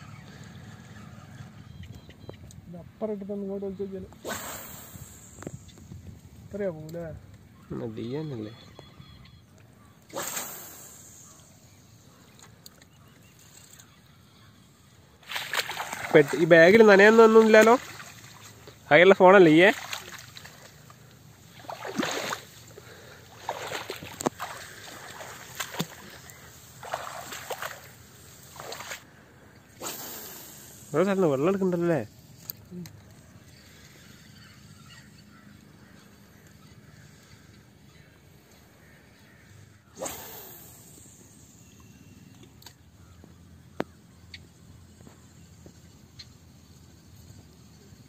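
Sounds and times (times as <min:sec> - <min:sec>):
fishing rod swishing: 0:04.2 - 0:05.4, 0:10.1 - 0:11.4, 0:21.5 - 0:29.0, 0:40.0 - 0:41.4
footsteps splashing in muddy water: 0:15.2 - 0:16.6, 0:17.3 - 0:18.8, 0:19.6 - 0:22.6, 0:23.3 - 0:27.9, 0:28.6 - 0:29.0
line rushing off reel: 0:40.0 - 0:42.1
faint sharp clicks: 0:41.8 - 0:42.8.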